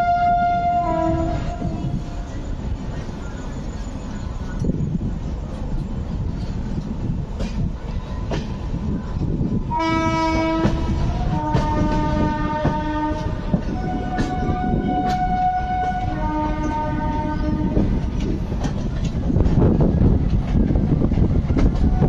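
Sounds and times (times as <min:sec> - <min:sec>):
train horn blasts: 0:00.0 - 0:02.2, 0:09.7 - 0:18.0
train wheels rumbling and clattering: 0:00.0 - 0:22.0.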